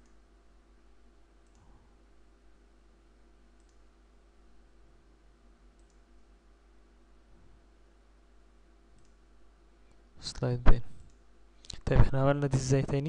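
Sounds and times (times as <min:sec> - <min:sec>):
low steady hum: 0:00.0 - 0:13.0
computer mouse clicks: 0:01.4 - 0:01.7, 0:03.6 - 0:03.9, 0:05.8 - 0:06.2, 0:08.9 - 0:09.2.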